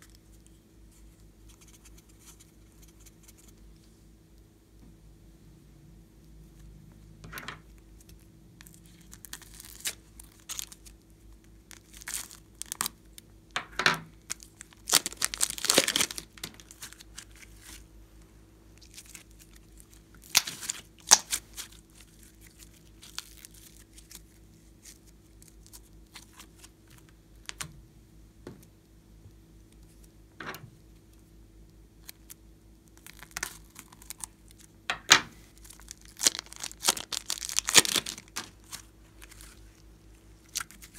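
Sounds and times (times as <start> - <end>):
plastic bag crinkling: 8.6 - 11.0, 11.7 - 13.0, 14.2 - 17.8, 18.8 - 27.6, 35.4 - 39.6.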